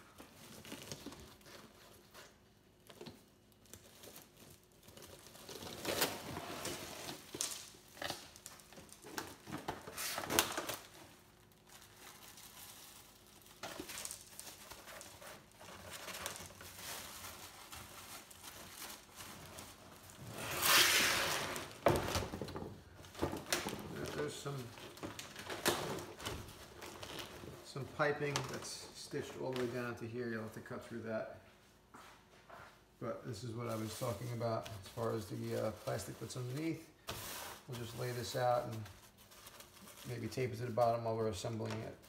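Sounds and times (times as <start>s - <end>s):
plastic sheeting crinkling: 0.0s - 22.0s, 33.3s - 42.0s
vinyl upholstery ripping: 20.2s - 21.8s.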